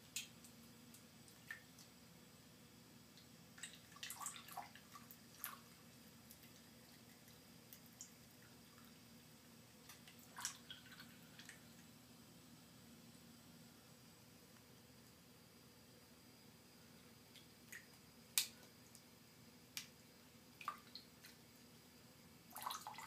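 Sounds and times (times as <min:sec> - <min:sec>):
water dripping in sink: 0:00.0 - 0:01.9, 0:03.1 - 0:09.0, 0:09.8 - 0:11.8, 0:17.3 - 0:19.1, 0:20.5 - 0:21.4, 0:22.5 - 0:23.0.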